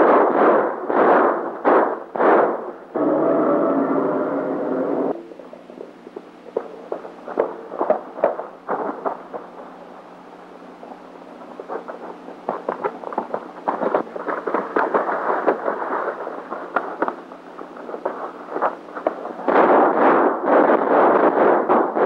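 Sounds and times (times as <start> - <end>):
gunfire: 0.0 - 3.1, 6.5 - 10.0, 11.2 - 22.0
horse hoofbeats on dirt: 11.5 - 17.2.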